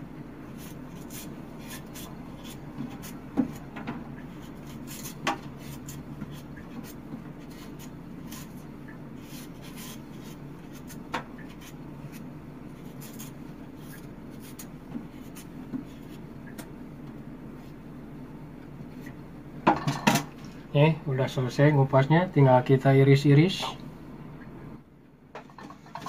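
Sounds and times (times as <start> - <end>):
knife scraping sweet potato: 0.4 - 16.2.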